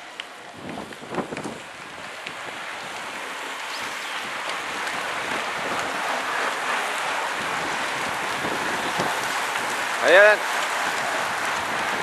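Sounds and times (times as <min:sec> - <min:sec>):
bicycle tyres hissing on tarmac: 0:00.0 - 0:12.0.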